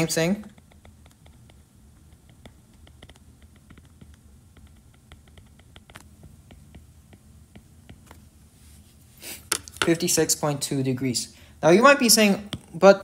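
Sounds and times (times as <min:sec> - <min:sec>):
stylus tapping on tablet screen: 0:00.4 - 0:08.2, 0:09.4 - 0:10.0.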